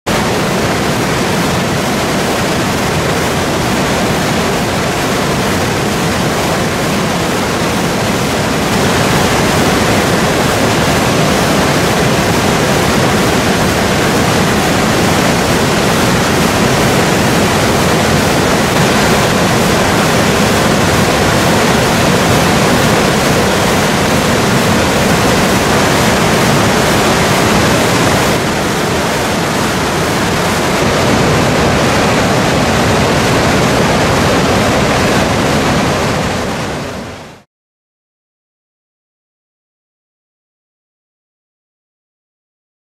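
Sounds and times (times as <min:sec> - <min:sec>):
waterfall rushing: 0:00.1 - 0:37.4.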